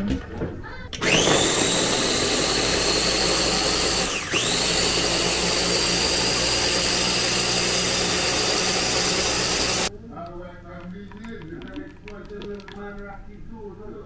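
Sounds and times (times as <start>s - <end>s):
blender motor whining: 1.0s - 9.9s.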